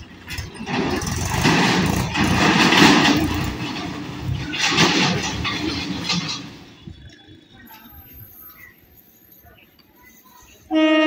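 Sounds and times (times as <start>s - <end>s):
tractor engine running: 0.0s - 8.0s
motorbike engines: 0.0s - 11.0s.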